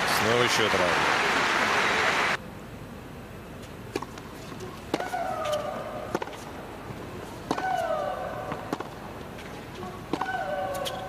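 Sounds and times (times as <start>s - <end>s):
tennis rackets striking ball: 4.9s - 6.4s, 7.4s - 9.0s
woman shrieking: 10.2s - 11.0s.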